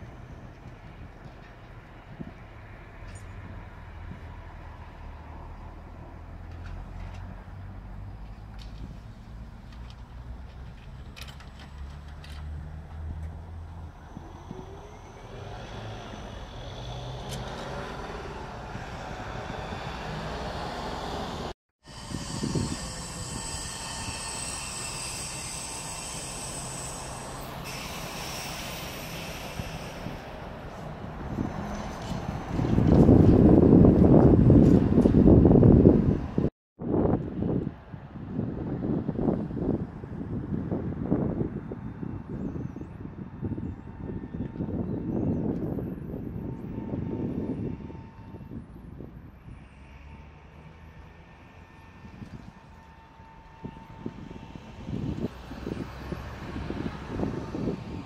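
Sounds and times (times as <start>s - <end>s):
trolleybus high-pitched whine: 0.0s - 36.5s, 38.6s - 58.0s
road rumble: 0.0s - 58.0s.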